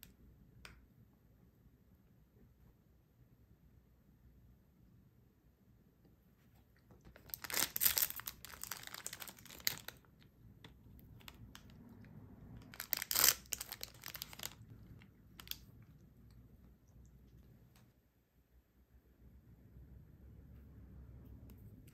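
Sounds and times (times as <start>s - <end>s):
plastic wrappers crinkling: 7.1s - 10.1s, 12.7s - 14.7s, 15.4s - 15.6s.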